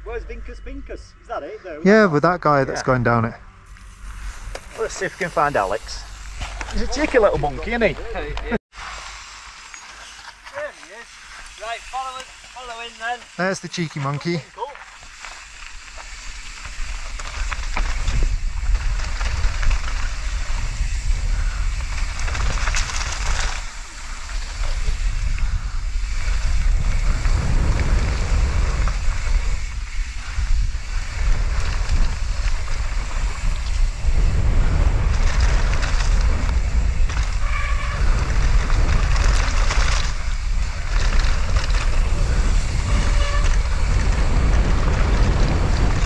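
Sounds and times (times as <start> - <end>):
bike rumbling over ground: 14.8 - 46.0
wind rushing over microphone: 16.0 - 46.0.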